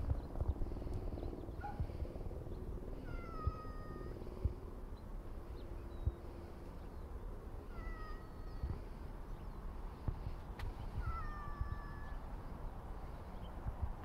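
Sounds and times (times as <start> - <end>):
wind rumble on microphone: 0.0 - 14.0
cat chirp: 3.0 - 4.2, 7.6 - 8.8, 10.9 - 12.2
cat meowing: 3.0 - 4.2, 7.6 - 8.9, 11.0 - 12.2.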